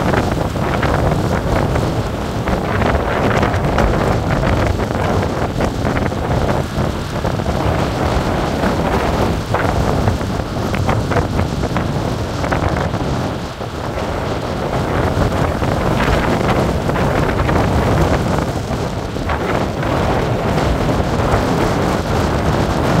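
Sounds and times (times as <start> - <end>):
storm wind buffeting microphone: 0.0 - 23.0
surf breaking on rocks: 0.0 - 23.0.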